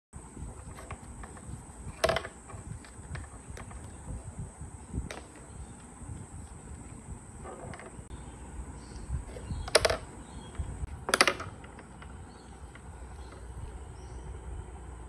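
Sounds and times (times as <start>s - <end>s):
pool balls clacking: 0.4s - 8.1s, 9.2s - 13.6s.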